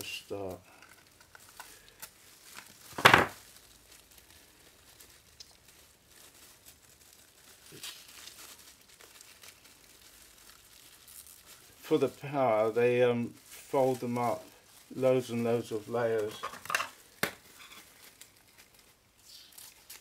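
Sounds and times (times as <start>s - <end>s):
crinkling of foil and plastic gloves: 0.0s - 20.0s
foil pouch ripping: 0.0s - 20.0s.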